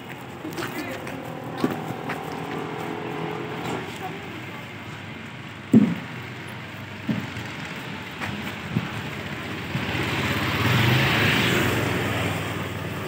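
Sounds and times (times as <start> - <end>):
street traffic: 0.0 - 13.0
vehicle passing by: 0.0 - 13.0.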